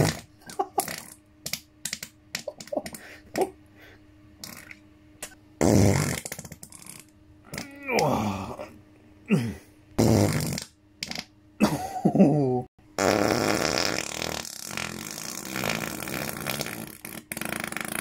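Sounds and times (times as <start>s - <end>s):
farts: 0.0s - 1.2s, 4.4s - 4.8s, 5.6s - 7.7s, 10.0s - 11.3s, 13.0s - 18.0s.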